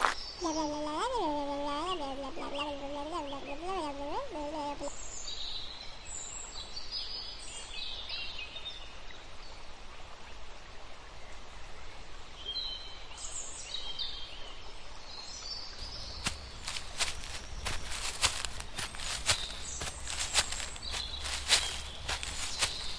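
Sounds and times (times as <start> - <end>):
birds chirping: 15.8 - 22.9
sharp footsteps: 15.8 - 22.9.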